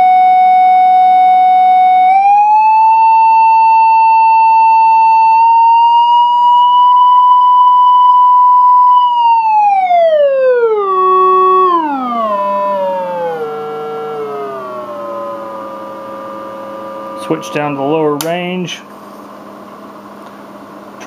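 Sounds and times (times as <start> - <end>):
sweeping test tone: 2.5 - 18.8.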